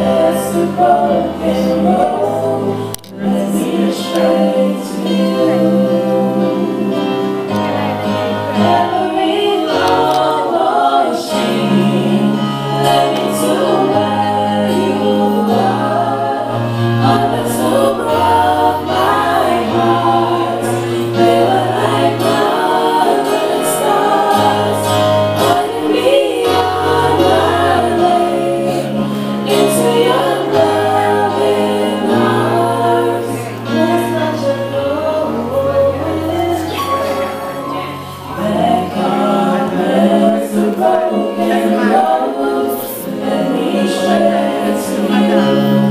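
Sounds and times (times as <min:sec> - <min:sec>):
choir singing with instruments: 0:00.0 - 0:45.9.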